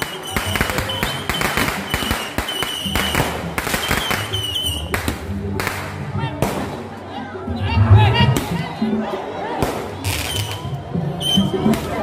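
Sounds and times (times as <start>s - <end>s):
firecrackers cracking and popping: 0.0s - 6.8s.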